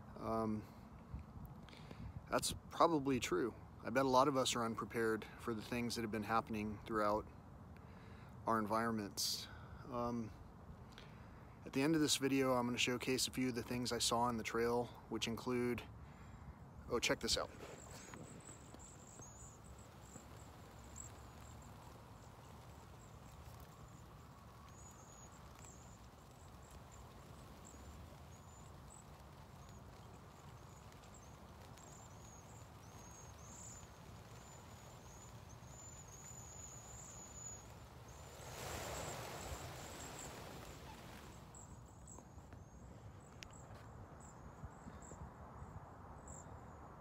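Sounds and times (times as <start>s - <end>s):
faint high chirps: 17.6s - 45.2s
rush of hiss: 34.0s - 41.6s.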